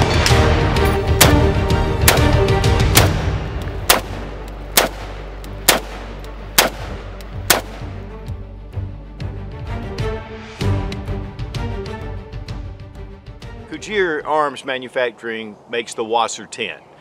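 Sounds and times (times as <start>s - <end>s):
background music: 0.0s - 14.9s
rifle single shots: 1.2s - 8.0s.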